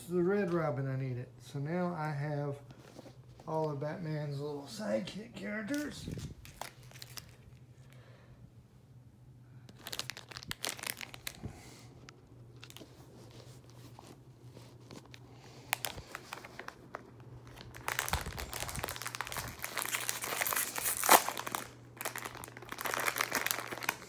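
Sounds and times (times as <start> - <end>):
plastic bag crinkling and tearing: 5.7 - 7.6, 9.7 - 11.7, 12.6 - 14.1, 14.7 - 24.0.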